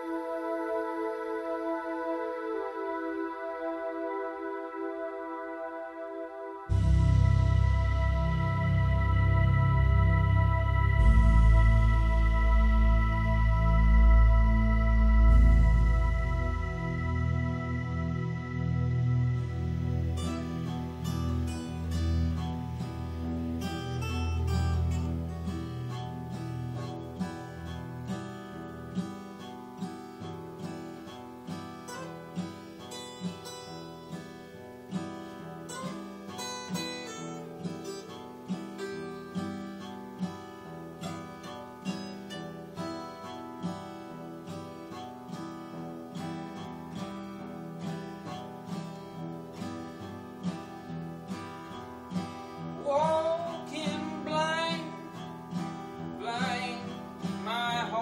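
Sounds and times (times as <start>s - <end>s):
person singing: 0.0s - 21.7s, 52.8s - 55.2s, 56.2s - 58.0s
acoustic guitars playing: 0.0s - 58.0s.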